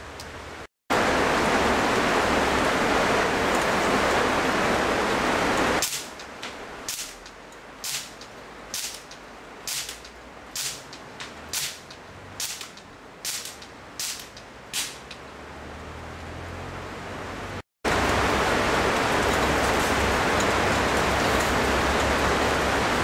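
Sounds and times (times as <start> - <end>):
loud steady rushing noise: 0.0 - 23.0
air rifle shots: 7.8 - 8.2, 8.8 - 15.1.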